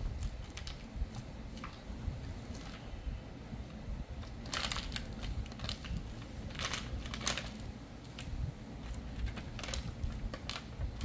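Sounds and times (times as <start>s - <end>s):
crinkling handling noises: 0.0s - 11.0s.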